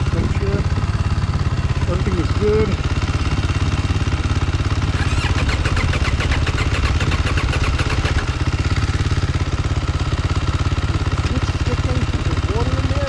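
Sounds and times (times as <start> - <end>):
motorcycle engine idling: 0.0 - 13.0
rapid clicking rattle: 2.5 - 10.0.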